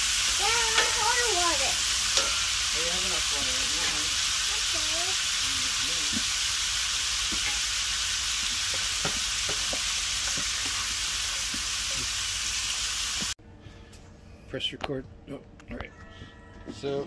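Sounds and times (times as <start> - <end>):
vegetables sizzling in a skillet: 0.0 - 13.4
wooden spoon knocking on pan: 8.7 - 10.8.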